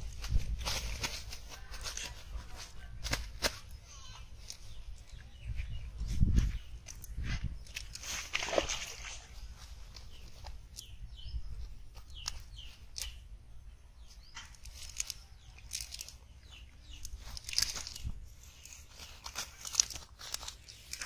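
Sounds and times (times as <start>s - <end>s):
fish flopping on grass and leaves: 0.0s - 3.8s, 6.1s - 10.9s, 14.4s - 21.0s.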